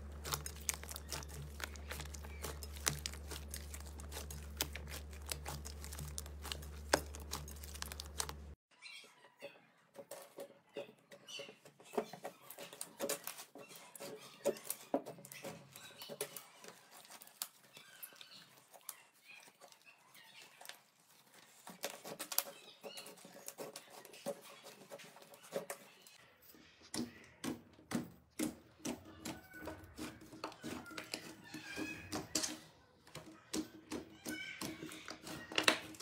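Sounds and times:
slime squelching and popping: 0.0s - 8.6s.

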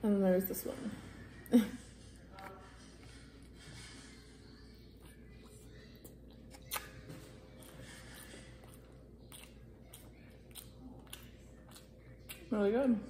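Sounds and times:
wet mouth chewing clicks: 5.0s - 12.5s.

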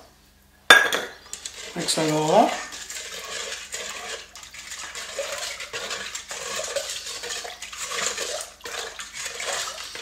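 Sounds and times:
spoon swishing and scraping bowl: 1.3s - 10.0s.

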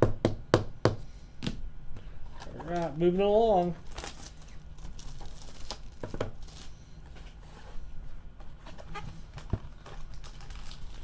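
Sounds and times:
hands handling card boxes: 1.4s - 3.0s.

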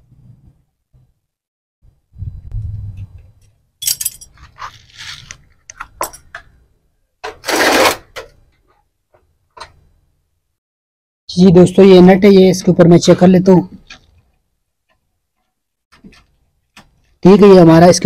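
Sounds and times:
metal tools clinking and rattling: 3.4s - 5.2s, 5.8s - 6.4s
scraping rustle: 4.3s - 5.6s.

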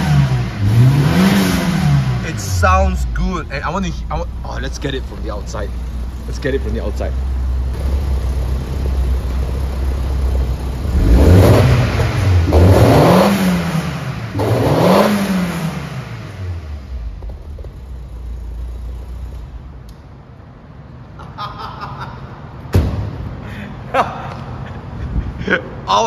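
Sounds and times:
car engine idling and revving: 0.0s - 21.1s
sharp knock: 22.7s - 23.3s.

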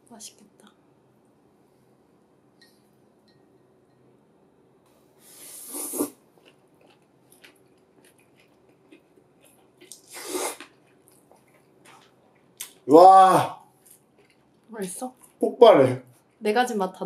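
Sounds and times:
person slurping noodles: 5.2s - 6.2s, 9.9s - 10.7s
faint chewing: 5.6s - 12.9s, 13.7s - 15.4s.

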